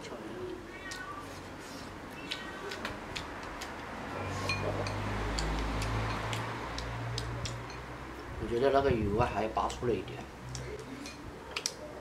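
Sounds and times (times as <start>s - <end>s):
chopsticks clicking on porcelain bowls: 4.5s - 7.9s.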